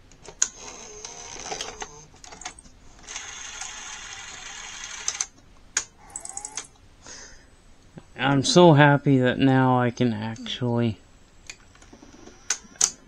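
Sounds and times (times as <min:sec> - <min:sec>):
motor and gear whir: 0:00.5 - 0:02.1, 0:03.0 - 0:05.3, 0:11.7 - 0:13.0.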